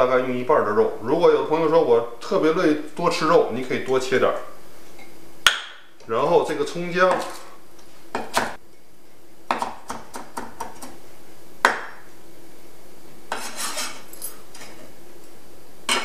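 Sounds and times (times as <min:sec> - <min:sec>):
cleaver chopping on wooden block: 0:08.2 - 0:08.6, 0:09.5 - 0:10.9, 0:11.6 - 0:12.0
blade scraping across board: 0:13.3 - 0:14.1.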